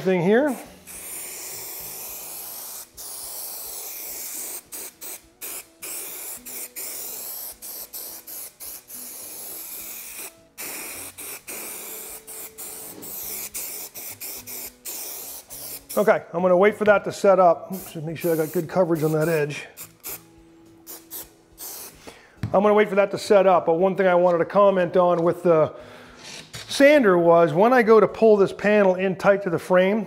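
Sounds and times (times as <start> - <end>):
aerosol spray can hissing: 0.5 - 16.1, 17.7 - 22.1.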